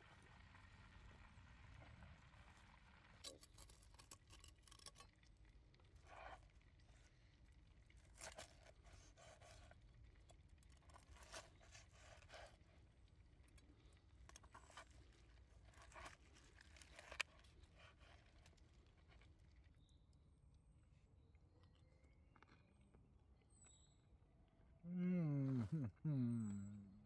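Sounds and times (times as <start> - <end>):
knife crunching through ribs: 7.9 - 9.8, 10.6 - 12.8, 14.3 - 19.3.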